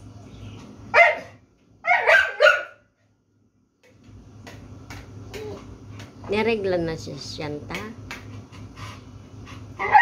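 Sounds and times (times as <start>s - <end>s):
dog barking: 0.9s - 2.9s, 9.8s - 10.0s.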